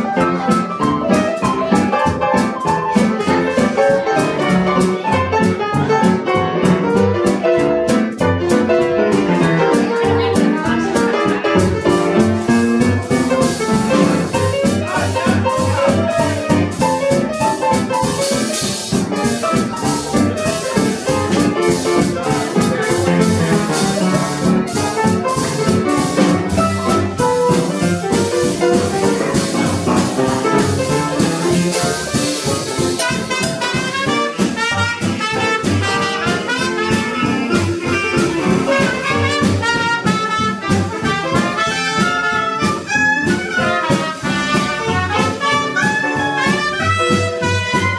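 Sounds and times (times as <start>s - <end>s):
drum kit swing beat: 0.0s - 47.9s
trumpet melody: 0.0s - 47.9s
upright bass: 0.0s - 47.9s
clarinet: 19.5s - 47.9s.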